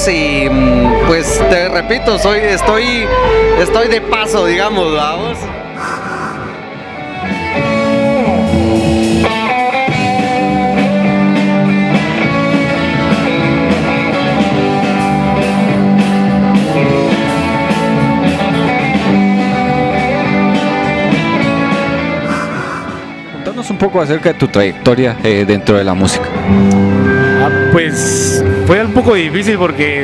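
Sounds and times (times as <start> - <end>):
electric bass: 0.0 - 30.0
electric guitars: 2.4 - 30.0
drum kit: 5.4 - 23.7.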